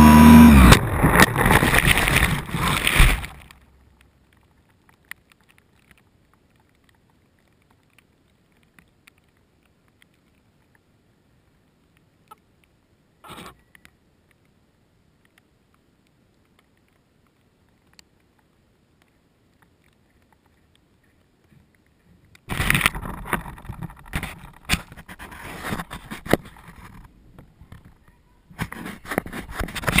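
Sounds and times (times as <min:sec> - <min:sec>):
grass rustling: 0:00.0 - 0:10.7, 0:15.2 - 0:30.0
scraping and clicking: 0:00.5 - 0:03.6, 0:28.6 - 0:30.0.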